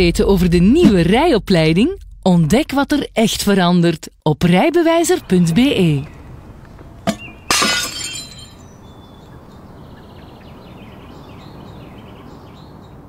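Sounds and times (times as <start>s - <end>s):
small birds chirping: 5.2s - 13.0s
ceramic shards clinking: 7.0s - 8.7s.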